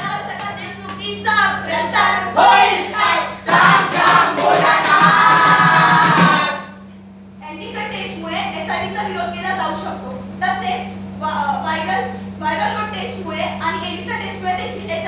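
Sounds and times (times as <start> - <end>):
group singing in chorus: 1.9 - 6.8.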